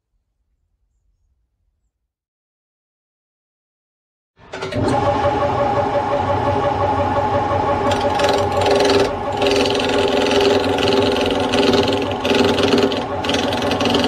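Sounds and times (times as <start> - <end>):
wood lathe motor hum: 4.7 - 14.0
chisel cutting wood: 7.9 - 14.0.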